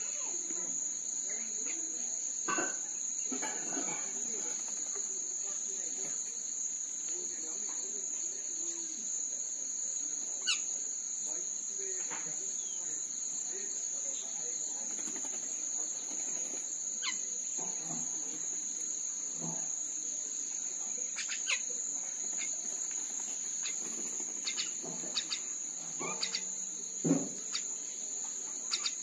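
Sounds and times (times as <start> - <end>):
insect drone: 0.0 - 29.0
mynas calling: 21.1 - 21.7, 23.6 - 26.6.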